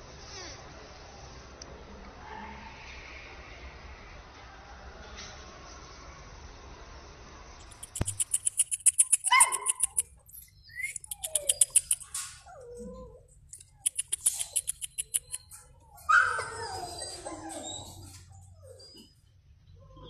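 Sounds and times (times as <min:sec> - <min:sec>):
fast sharp clicking: 0:07.7 - 0:10.1, 0:10.8 - 0:12.2, 0:13.6 - 0:15.4
puppies whining and yelping: 0:07.8 - 0:20.0.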